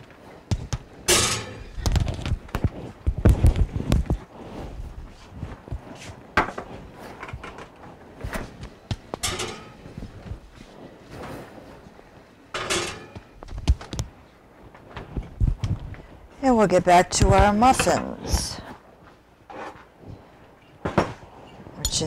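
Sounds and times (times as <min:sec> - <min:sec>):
dishes knocking and clunking: 0:00.5 - 0:03.3, 0:08.3 - 0:10.3, 0:12.5 - 0:14.1, 0:17.2 - 0:18.2.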